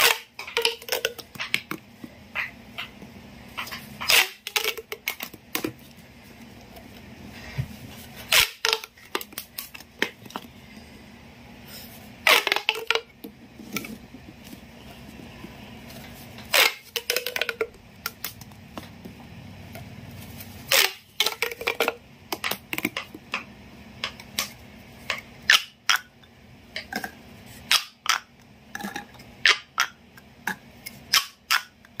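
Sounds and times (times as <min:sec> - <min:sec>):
plastic pop tubes snapping: 0:00.0 - 0:01.8, 0:03.6 - 0:05.8, 0:08.3 - 0:10.5, 0:12.2 - 0:13.9, 0:16.4 - 0:18.9, 0:20.7 - 0:26.1, 0:27.7 - 0:32.0.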